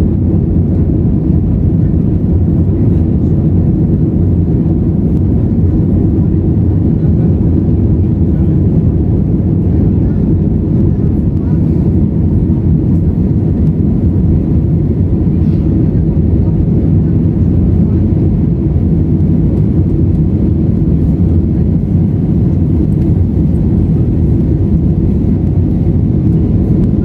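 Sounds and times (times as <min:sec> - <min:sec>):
jet engine rumble in cabin: 0:00.0 - 0:27.0.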